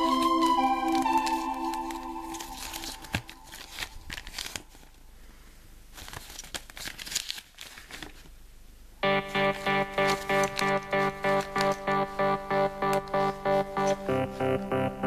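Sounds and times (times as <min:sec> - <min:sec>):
paper crinkling and rustling: 0:00.0 - 0:05.1, 0:05.9 - 0:08.5.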